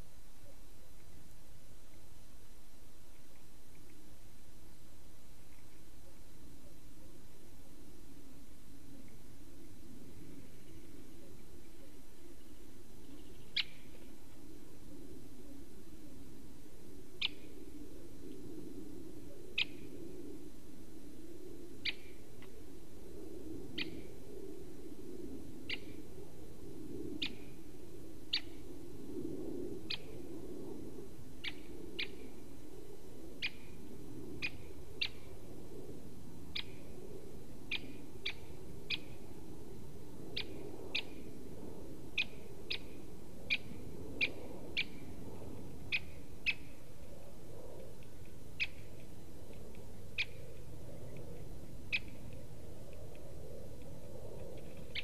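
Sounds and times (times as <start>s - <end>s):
steady low hum: 0.0s - 55.0s
woodpecker calling: 13.0s - 14.0s, 45.9s - 46.7s.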